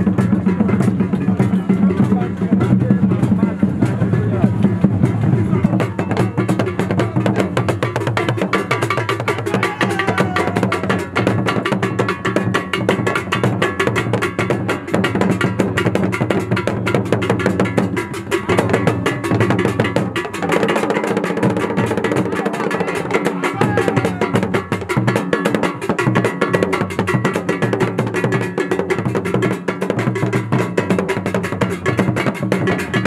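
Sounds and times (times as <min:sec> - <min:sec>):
drum ensemble playing: 0:00.0 - 0:33.0.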